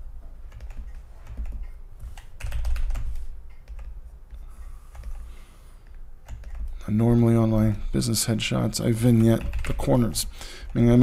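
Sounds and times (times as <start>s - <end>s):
keyboard keys clicking: 0.5s - 4.0s, 6.2s - 6.7s.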